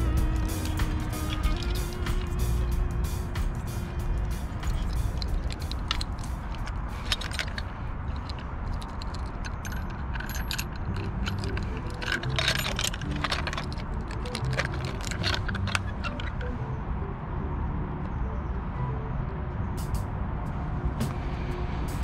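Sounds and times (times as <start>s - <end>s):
metal tools clicking and jangling: 0.0s - 16.5s.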